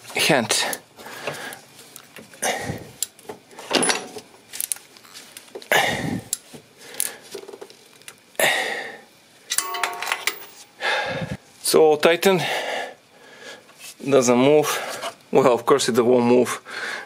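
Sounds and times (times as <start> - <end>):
light metallic clinks: 9.5 - 10.7
spanner scraping and rustling: 9.5 - 10.8.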